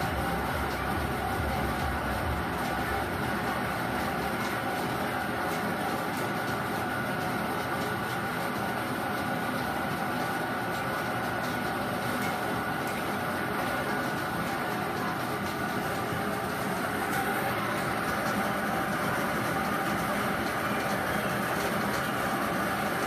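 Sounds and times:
air blower humming: 0.0s - 5.6s, 10.4s - 23.0s.

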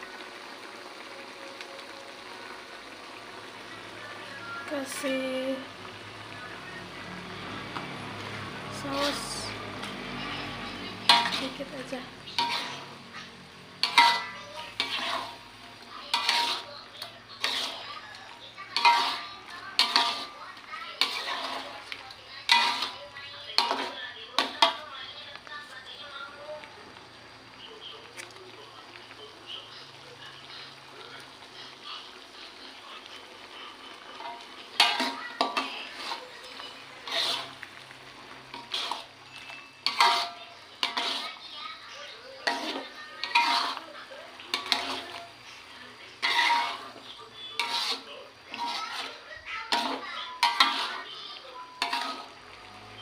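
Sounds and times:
frying sizzle: 0.0s - 53.0s
spatula scraping metal wok: 6.7s - 24.8s, 32.5s - 53.0s.

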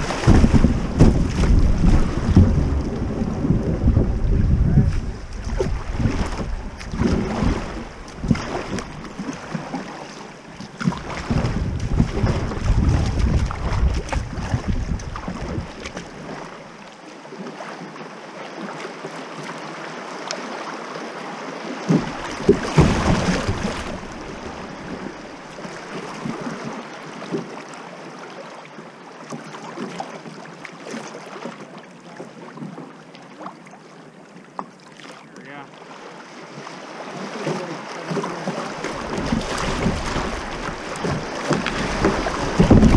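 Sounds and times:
wind buffeting microphone: 0.0s - 9.4s, 10.8s - 16.0s, 38.8s - 42.9s
river water rippling past hull: 0.0s - 42.9s.

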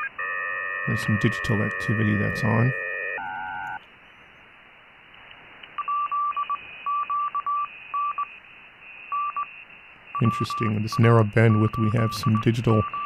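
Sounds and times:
morse code beeping tone: 0.0s - 3.8s, 9.1s - 9.5s, 10.2s - 13.0s
faint digital signal tone: 0.0s - 4.4s, 5.8s - 13.0s
radio band hiss: 0.8s - 2.9s, 10.2s - 13.0s.

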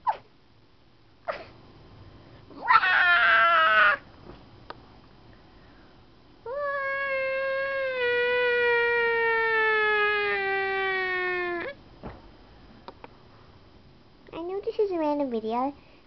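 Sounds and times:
high-pitched meow-like cries: 2.6s - 4.0s, 6.5s - 11.8s.

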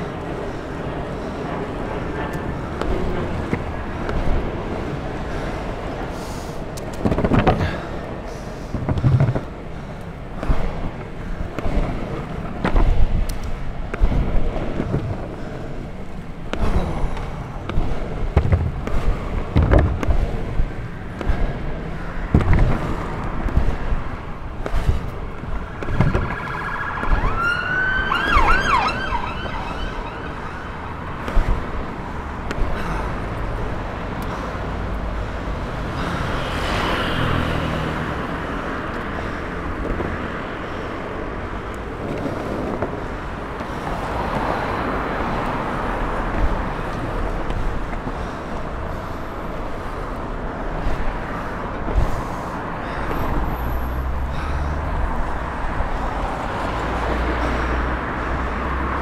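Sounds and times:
longboard wheels rolling on pavement: 0.0s - 59.0s
road traffic: 0.0s - 59.0s
siren wailing: 25.6s - 31.1s.

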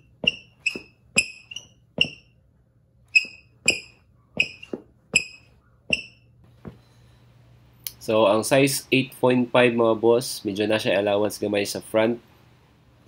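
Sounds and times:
sneakers squeaking on tile floor: 0.0s - 2.4s, 3.1s - 6.9s.

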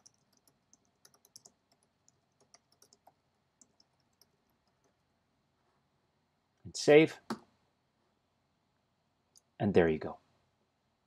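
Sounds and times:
faint keyboard typing: 0.0s - 5.1s.

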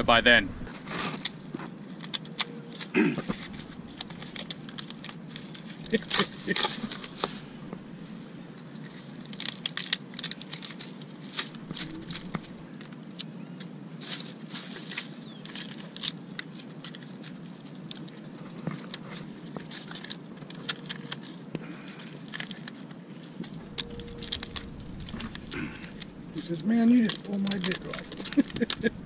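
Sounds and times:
plastic bag crinkling: 1.2s - 8.1s, 8.7s - 12.6s, 14.2s - 29.0s
crab shells clicking: 3.5s - 6.4s, 9.2s - 13.0s, 18.7s - 26.2s, 26.9s - 29.0s
steady background rush: 23.3s - 29.0s.

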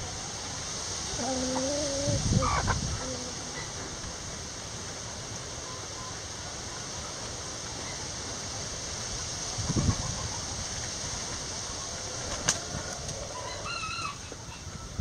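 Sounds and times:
steady background hiss: 0.0s - 15.0s
chicken clucking and squawking: 1.1s - 4.0s, 9.6s - 14.8s
faint distant chirps: 5.4s - 8.3s.

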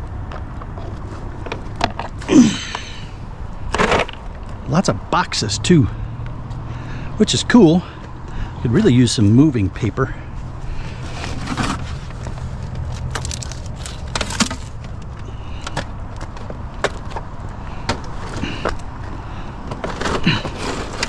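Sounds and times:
plastic printer being handled: 11.0s - 18.8s.

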